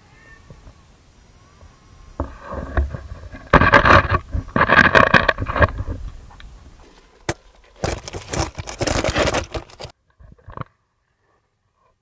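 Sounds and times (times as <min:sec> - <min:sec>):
camera scraping and rustling: 0:02.2 - 0:10.7.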